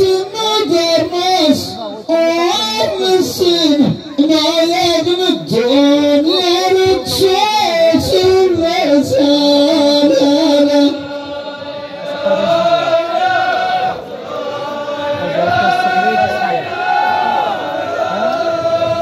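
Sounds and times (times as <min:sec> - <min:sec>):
person singing solo: 0:00.0 - 0:11.2.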